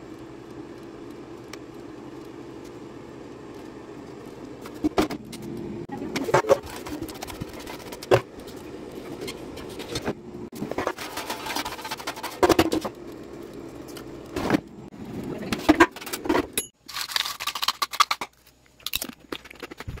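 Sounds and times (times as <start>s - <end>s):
chips scraping in air fryer basket: 6.2s - 13.0s, 15.4s - 18.4s.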